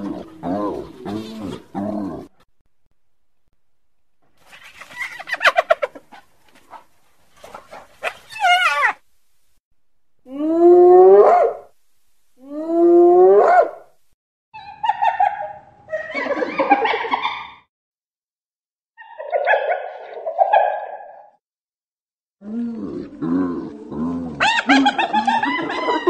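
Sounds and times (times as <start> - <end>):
wild dog chattering yelps: 8.0 - 9.0, 19.0 - 21.2, 24.4 - 26.0.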